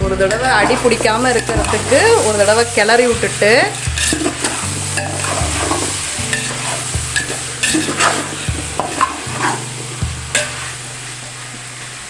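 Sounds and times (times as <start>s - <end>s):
potatoes sizzling in oil: 0.0s - 12.0s
spatula scraping a metal pot: 0.2s - 2.8s, 3.4s - 9.7s.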